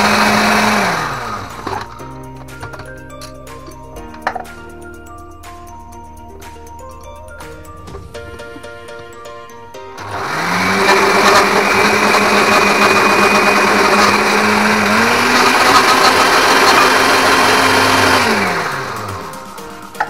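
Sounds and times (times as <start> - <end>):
blender grinding bread: 0.0 - 2.0, 10.0 - 19.4.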